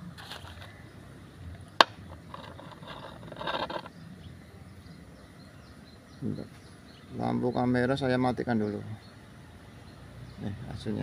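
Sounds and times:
soft rustling and scraping: 0.1s - 0.8s, 2.0s - 3.9s.

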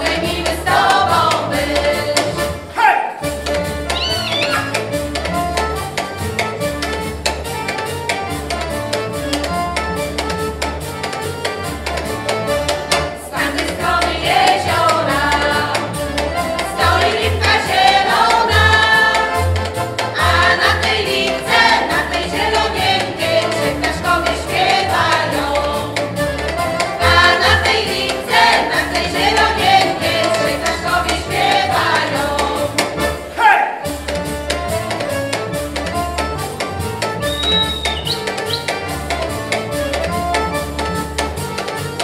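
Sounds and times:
folk choir singing: 0.0s - 2.8s, 12.9s - 33.7s
accordion: 0.0s - 42.0s
double bass pulse: 3.3s - 33.3s, 33.9s - 41.6s.

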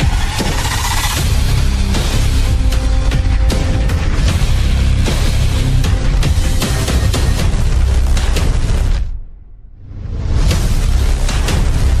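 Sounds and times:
sharp hits: 0.0s - 2.8s
music with heavy bass: 0.0s - 9.2s, 10.0s - 12.0s.

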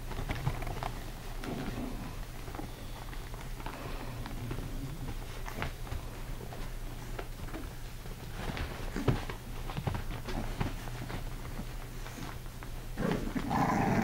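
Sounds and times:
puppies scuffling on blanket: 0.0s - 14.0s
puppy growling: 0.5s - 2.7s, 13.0s - 14.0s.

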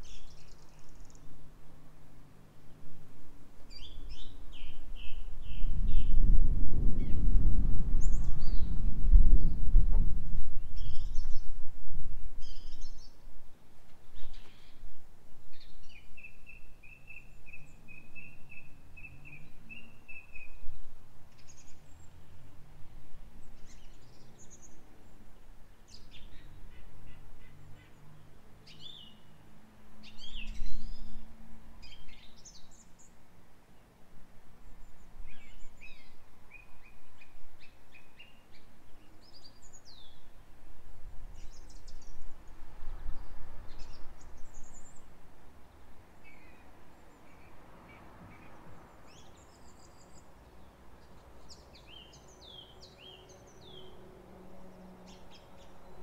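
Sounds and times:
songbirds chirping and trilling: 0.0s - 56.0s
wind rumbling on microphone: 2.9s - 24.7s, 30.1s - 32.8s, 39.3s - 45.3s.

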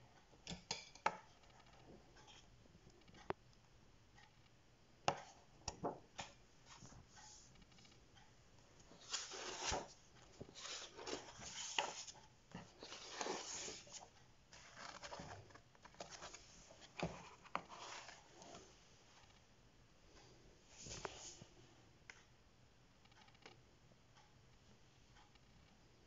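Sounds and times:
pages turning: 8.9s - 18.2s.

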